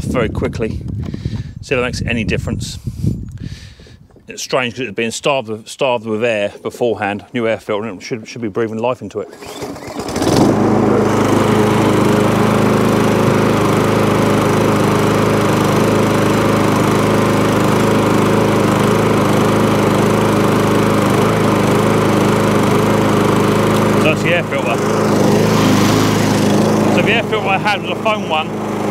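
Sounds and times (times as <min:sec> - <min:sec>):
lawnmower engine running: 0:09.1 - 0:28.9.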